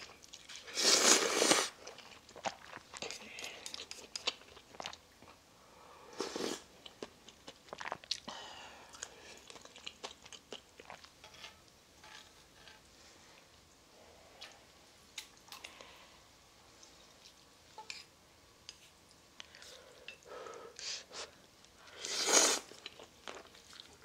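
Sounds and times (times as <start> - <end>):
slurping noodles: 0.5 - 1.8, 6.2 - 6.7, 22.0 - 22.8.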